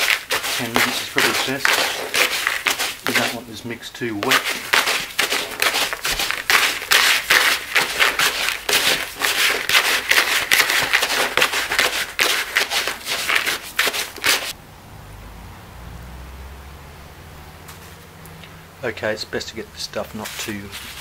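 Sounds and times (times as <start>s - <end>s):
gritty mix stirred in plastic bucket: 0.0s - 14.6s, 19.9s - 21.0s.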